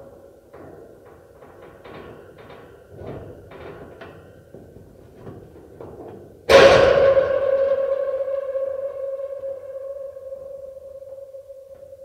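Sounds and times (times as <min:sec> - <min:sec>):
loud ringing metal bang: 0:06.5 - 0:12.0.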